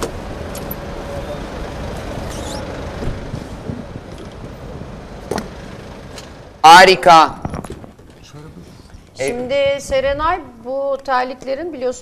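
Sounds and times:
road traffic: 0.0 - 12.0
faint squeak: 2.2 - 2.7.

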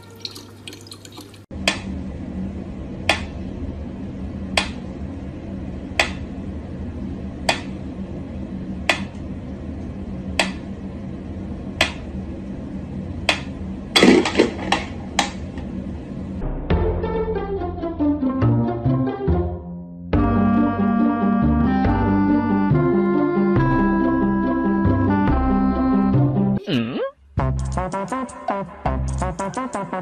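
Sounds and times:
low steady hum: 0.0 - 16.7.

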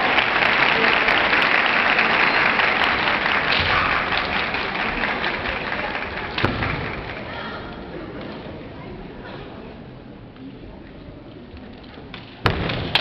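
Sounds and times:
audience applause: 0.0 - 7.6.

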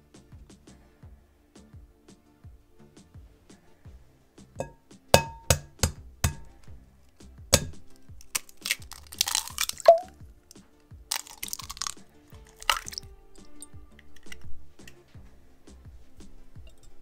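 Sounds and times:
soft background music: 0.0 - 17.0
egg tapped against glass bowl: 4.6 - 6.5, 7.6 - 8.4
eggshell crackling: 5.2 - 6.5, 7.5 - 10.2, 11.1 - 14.6
egg dropping into bowl: 7.6 - 10.1, 11.1 - 13.0.

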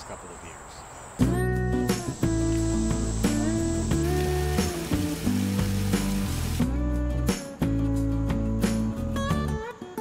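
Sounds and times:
guitar-like background music: 1.2 - 10.0
rushing water hiss: 1.8 - 6.8.

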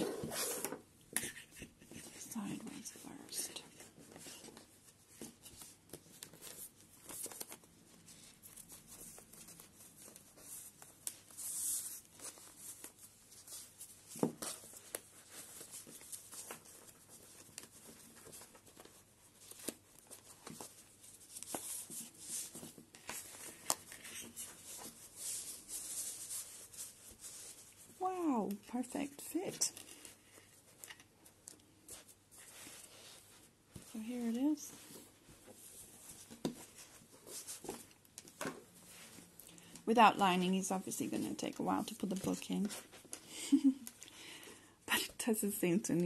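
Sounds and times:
fabric rustling and scraping: 0.0 - 43.8.

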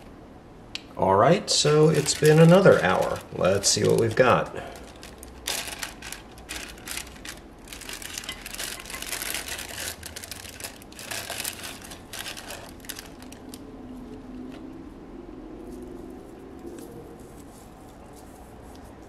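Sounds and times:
plastic bag crinkling: 1.5 - 13.6.

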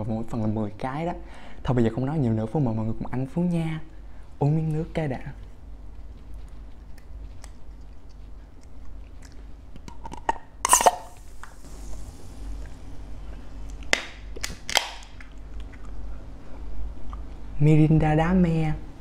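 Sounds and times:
soda can cracking open: 9.8 - 11.6, 13.8 - 15.3
soda fizzing: 10.7 - 12.6.

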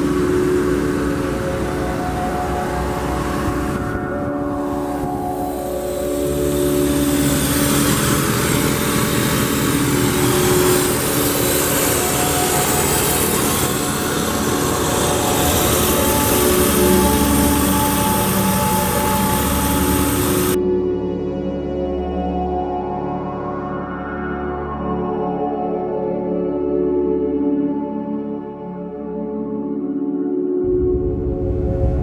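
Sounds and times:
car engine idling: 4.6 - 20.6.

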